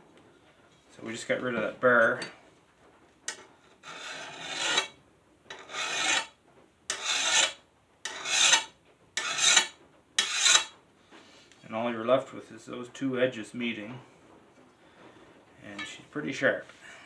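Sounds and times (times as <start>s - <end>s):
hand file rasping on steel: 3.8s - 10.7s.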